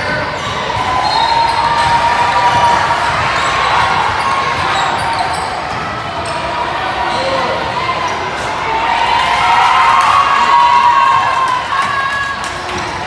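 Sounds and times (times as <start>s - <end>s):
shoe squeaks: 0.0s - 2.0s, 3.4s - 7.5s
gym hall noise: 0.0s - 13.0s.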